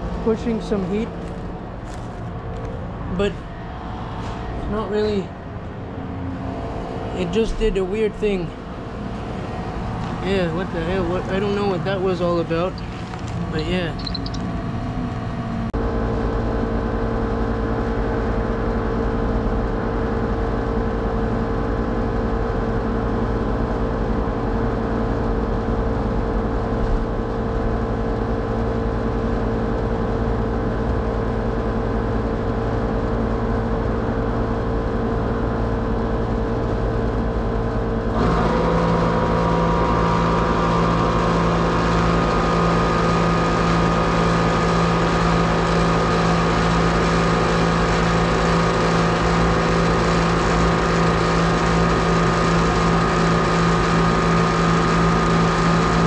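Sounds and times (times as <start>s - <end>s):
air conditioning unit humming: 0.0s - 56.0s
lower hum and hiss: 4.2s - 19.8s.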